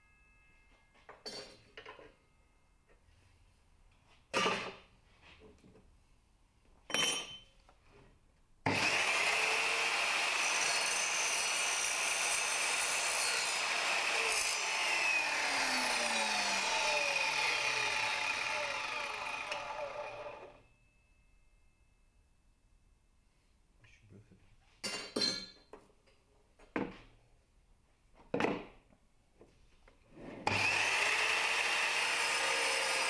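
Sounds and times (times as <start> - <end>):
mitre saw cutting copper pipe: 8.7 - 20.6, 30.5 - 33.0.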